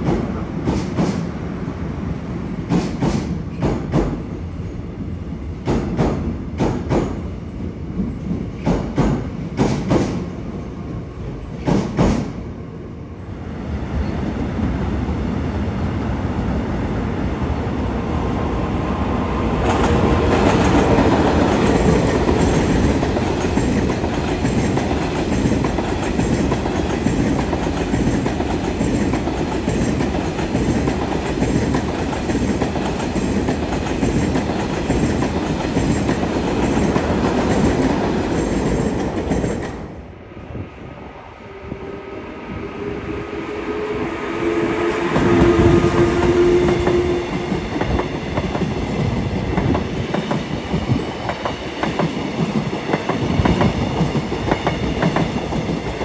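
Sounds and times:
train rumbling past: 0.0 - 56.0
train wheels clacking over rail joints: 2.7 - 4.2, 8.3 - 10.2, 11.5 - 12.3.

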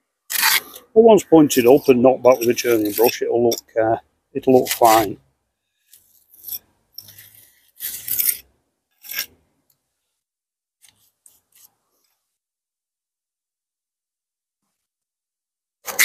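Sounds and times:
trowel scraping mortar: 0.3 - 3.8, 4.4 - 5.2, 5.8 - 9.4.

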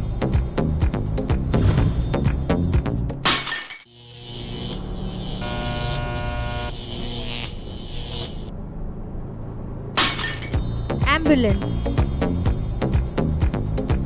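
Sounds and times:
steady buzzing tone: 3.9 - 8.6
buzzing vehicle engine: 3.9 - 14.0.

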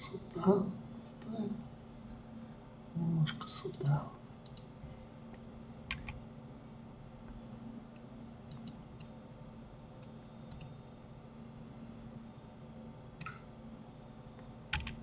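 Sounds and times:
faint steady hum: 0.0 - 15.0
mouse and keyboard clicks: 8.5 - 9.1.

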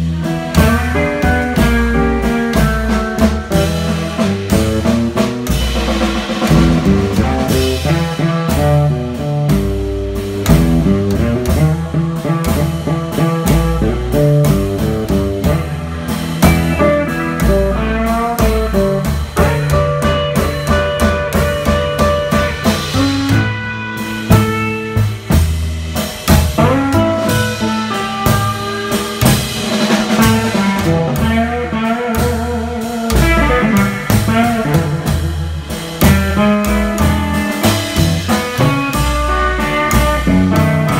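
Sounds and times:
drum kit steady beat: 0.0 - 40.9
electric guitar melody: 0.0 - 40.9
upright bass plucking: 0.0 - 40.9.

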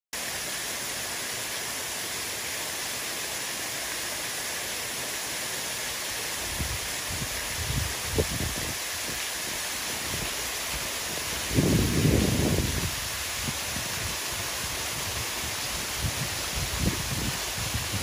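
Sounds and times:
water streams splashing: 0.2 - 18.0
wind buffeting microphone: 6.5 - 9.2, 10.0 - 18.0.

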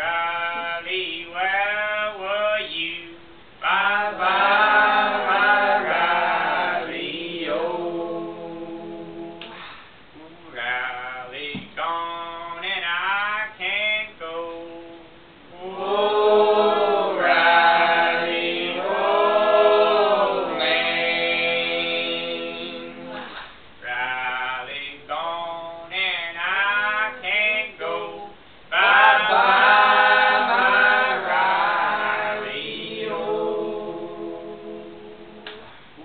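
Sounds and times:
man singing unaccompanied: 0.0 - 5.9, 10.1 - 19.9, 23.8 - 31.3.

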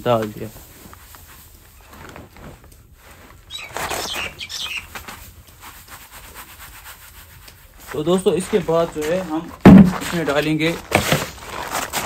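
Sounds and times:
birds chirping: 3.4 - 5.0.

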